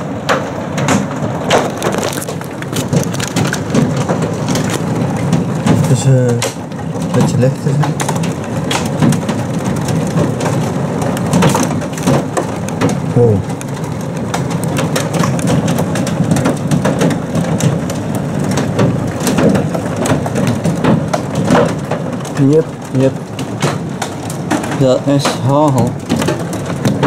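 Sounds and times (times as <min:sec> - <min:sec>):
hail clattering on hard surfaces: 0:00.0 - 0:27.0
rain: 0:00.0 - 0:27.0.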